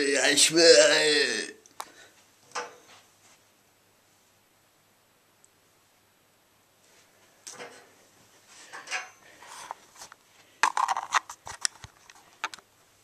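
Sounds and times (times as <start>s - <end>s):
objects being handled: 8.6s - 12.7s.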